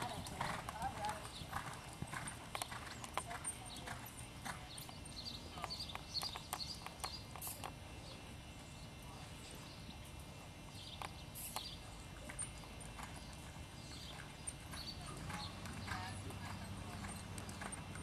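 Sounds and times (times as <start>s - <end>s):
horse hoofbeats on sand: 0.0s - 7.6s, 11.6s - 18.0s.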